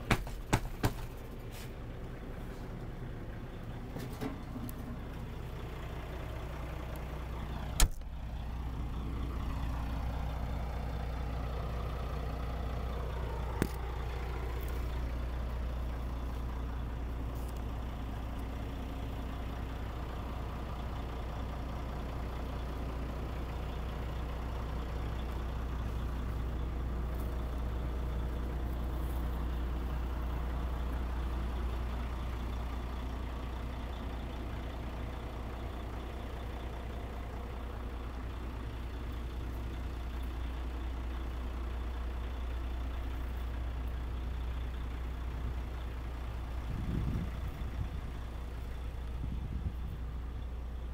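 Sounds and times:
diesel engine idling: 0.0 - 50.9.

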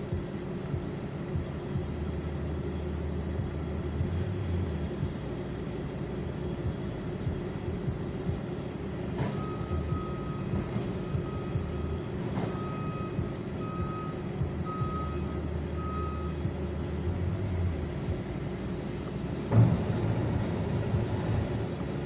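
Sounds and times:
diesel engine running: 0.0 - 22.0
backup alarm beeping: 9.2 - 16.7
sharp knocks: 19.5 - 21.7.

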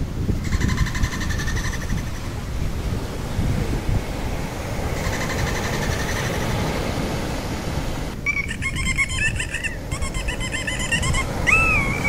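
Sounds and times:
dolphin whistles and chirps: 8.2 - 12.0.

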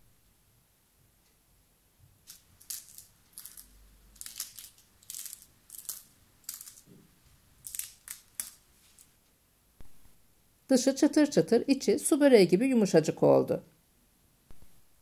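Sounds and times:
flaky pastry crunching: 2.3 - 9.2.

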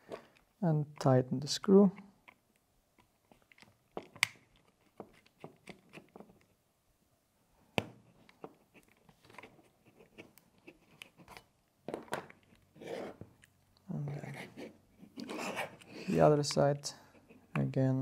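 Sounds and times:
screwdriver clicks and scrapes: 2.2 - 6.5.

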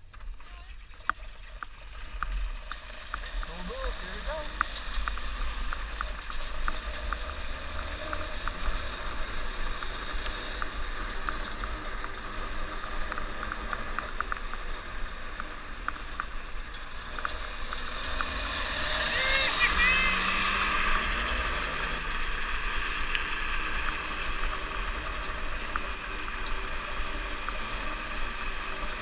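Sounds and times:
snowmobile engine running: 0.5 - 29.0
small irregular ticks: 1.0 - 19.4.

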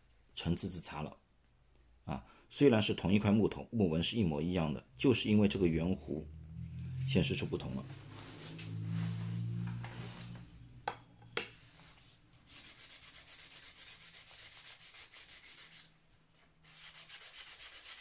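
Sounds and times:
sandpaper rubbing on wood: 12.5 - 15.9, 16.7 - 18.0.

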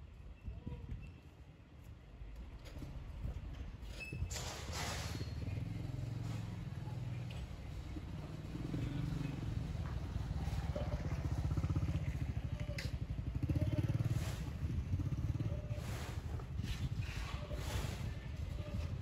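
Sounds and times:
vehicle engine rumbling: 2.4 - 19.0.

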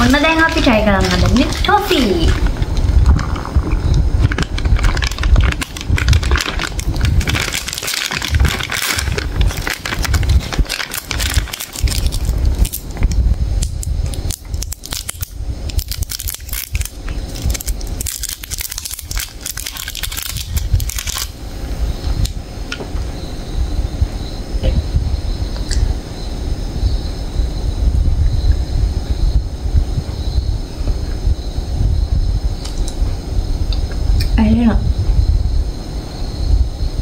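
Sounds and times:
plastic wrappers crinkling: 0.0 - 21.4.

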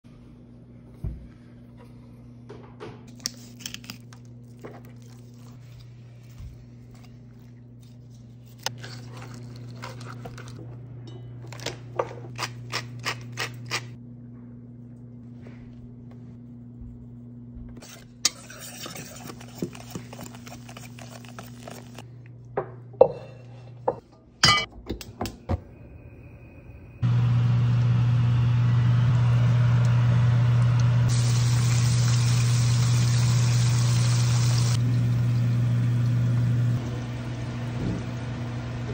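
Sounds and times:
low hum: 13.6 - 18.4, 20.3 - 38.9
flour stirred in metal bowl: 17.8 - 22.0
fish frying in hot oil: 31.1 - 36.0.

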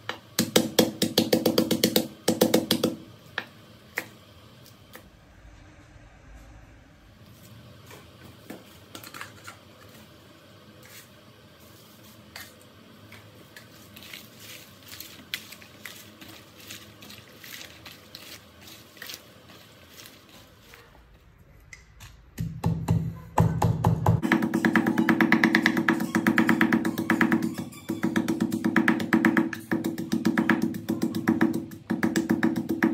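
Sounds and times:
vegetable stems crackling and rustling: 13.6 - 21.0.

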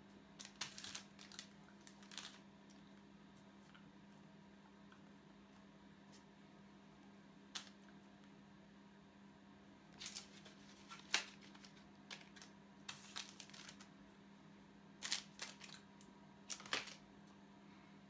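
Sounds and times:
low electrical hum: 0.0 - 18.0
packaging rustling: 0.4 - 2.4, 10.0 - 13.9, 15.0 - 15.9, 16.5 - 17.0.

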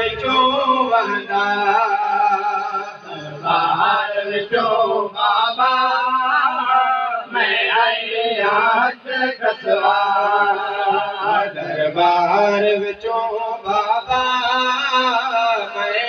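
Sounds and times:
man chanting a lament: 0.0 - 16.0.

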